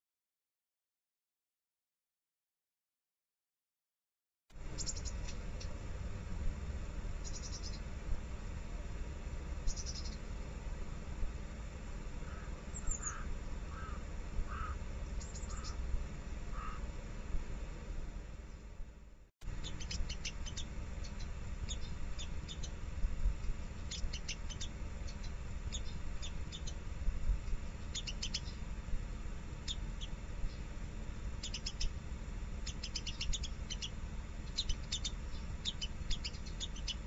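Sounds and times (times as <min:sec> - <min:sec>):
squirrel chattering: 0:04.7 - 0:05.8, 0:07.2 - 0:07.9, 0:09.7 - 0:10.2, 0:12.2 - 0:15.8, 0:19.5 - 0:22.8, 0:23.8 - 0:26.8, 0:27.8 - 0:28.6, 0:29.6 - 0:30.2, 0:31.4 - 0:32.0, 0:32.6 - 0:37.0.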